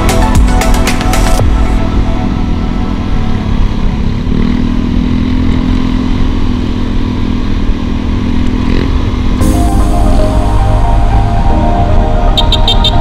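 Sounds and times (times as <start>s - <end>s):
road and wind rumble: 0.0s - 13.0s
scooter engine running: 1.6s - 10.8s.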